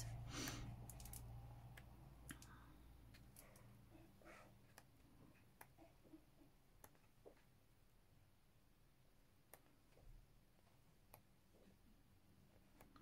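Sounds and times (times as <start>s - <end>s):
soft clicks: 0.4s - 3.7s.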